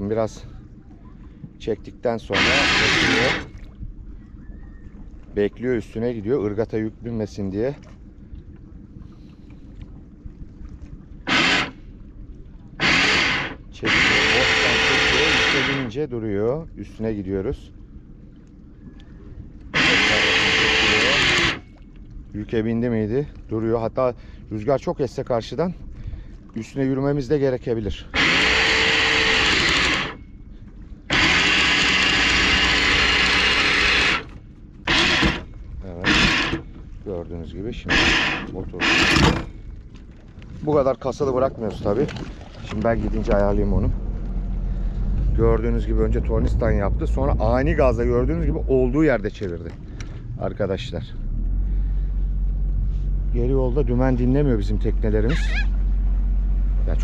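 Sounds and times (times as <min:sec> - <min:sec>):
anchor windlass whining: 0:00.0 - 0:07.5, 0:11.1 - 0:12.0, 0:12.6 - 0:18.1, 0:18.7 - 0:21.8, 0:25.2 - 0:57.0
boat engine rumble: 0:00.0 - 0:57.0
anchor windlass hauling chain: 0:02.1 - 0:03.6, 0:11.2 - 0:11.8, 0:12.8 - 0:16.0, 0:19.7 - 0:21.8, 0:27.7 - 0:30.4, 0:31.0 - 0:37.1, 0:37.7 - 0:39.9.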